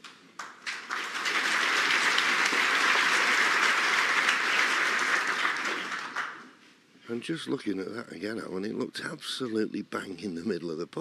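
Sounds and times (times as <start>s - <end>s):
audience applauding: 0.4s - 6.6s.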